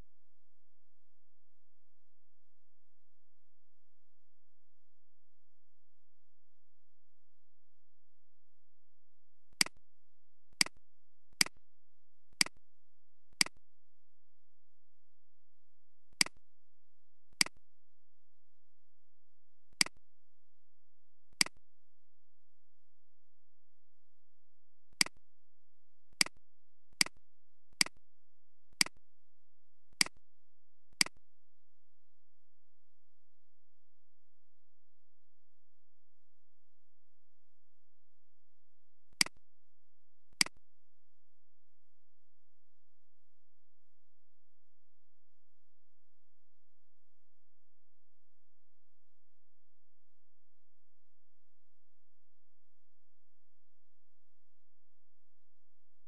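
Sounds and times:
computer mouse clicks: 28.7 - 29.0, 39.1 - 39.4, 40.4 - 40.6.

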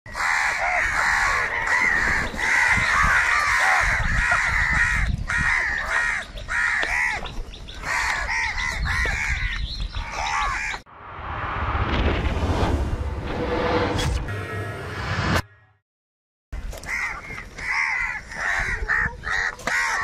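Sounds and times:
crows cawing: 0.1 - 10.8, 16.8 - 20.0.

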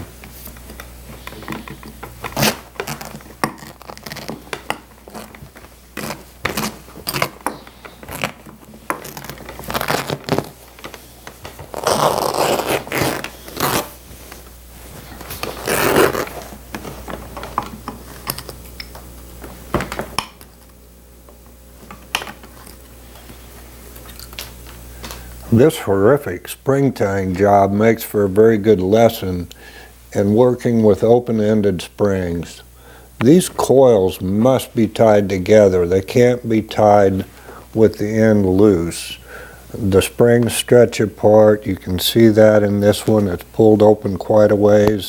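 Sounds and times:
cloth ripping: 2.2 - 7.4, 8.0 - 10.6, 11.6 - 14.0, 15.3 - 16.5.

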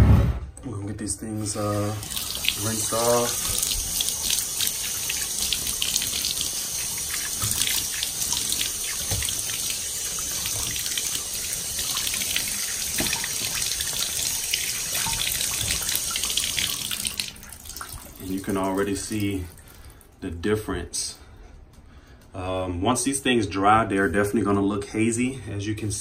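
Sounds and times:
water running from tap: 1.5 - 20.0
water splashing on plastic: 2.0 - 20.0.

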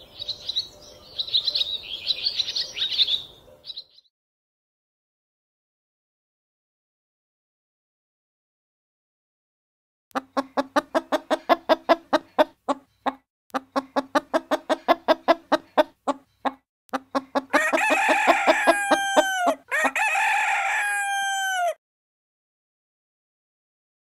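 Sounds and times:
chicken clucking: 10.1 - 21.7
rooster crowing: 17.5 - 21.8.

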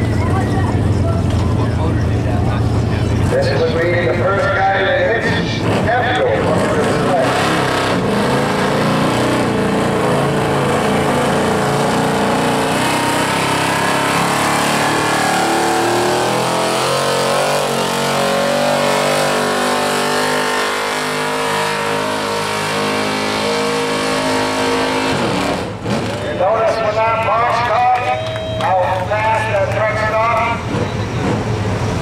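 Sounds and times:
truck engine revving under load: 5.0 - 26.7, 29.0 - 32.0.

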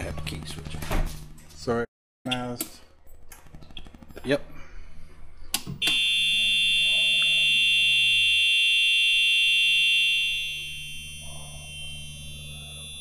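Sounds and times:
shrill electronic buzzer: 5.8 - 13.0.

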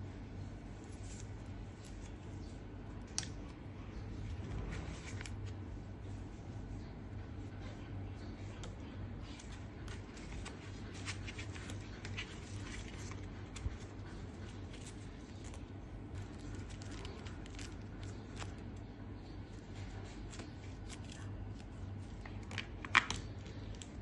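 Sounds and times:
low steady hum: 0.0 - 24.0
gloved hands rustling: 9.1 - 18.7.

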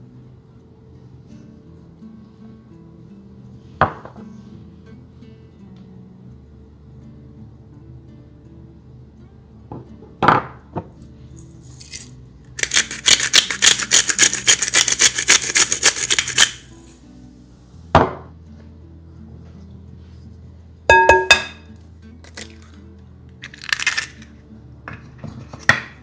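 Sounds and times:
soft background music: 0.0 - 26.0
pepper mill grinding: 11.6 - 16.8, 22.2 - 24.4.

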